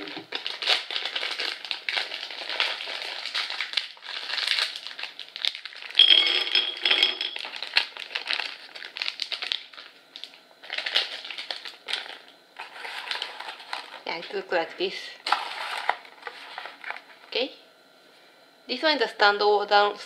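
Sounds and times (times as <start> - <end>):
plastic wrapper crinkling: 0.0 - 6.0, 7.4 - 14.5, 15.2 - 17.2.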